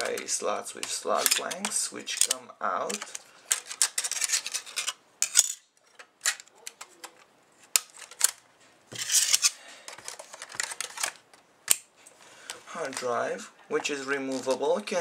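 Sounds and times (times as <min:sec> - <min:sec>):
plastic clicks and scrapes: 0:00.0 - 0:05.0, 0:05.8 - 0:11.8.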